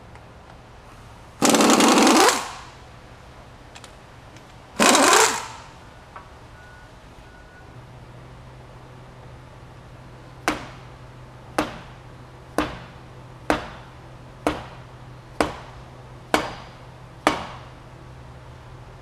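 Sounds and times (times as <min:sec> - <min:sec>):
hammer blows on metal: 0:12.6 - 0:17.8.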